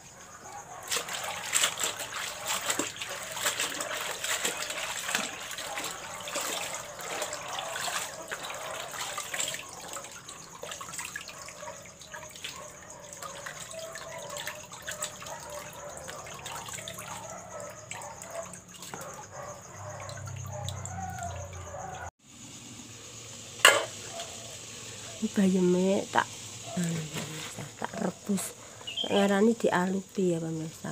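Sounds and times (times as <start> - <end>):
water splashing in a basin: 0.0 - 22.1
metal pot lid clank: 23.6 - 24.0.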